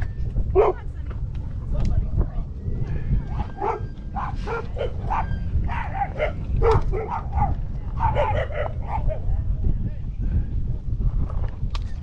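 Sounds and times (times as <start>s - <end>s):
steady low rumble: 0.0s - 12.0s
dog barking: 0.6s - 0.8s, 3.3s - 9.3s.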